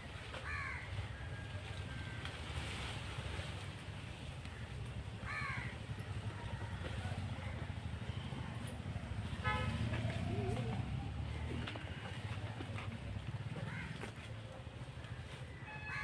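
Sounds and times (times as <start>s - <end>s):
bird cawing: 0.4s - 2.2s, 5.2s - 5.9s, 13.6s - 14.0s.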